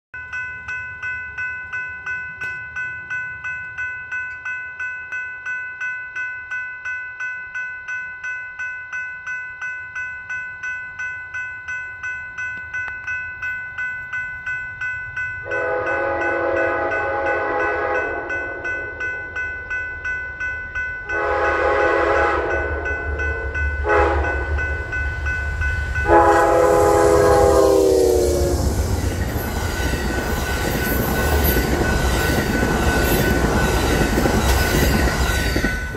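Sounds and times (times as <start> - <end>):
crossing warning bell ringing: 0.2 - 35.9
approaching train rumble: 14.9 - 35.9
train horn blasts: 15.5 - 19.0, 21.1 - 24.7, 26.0 - 29.0.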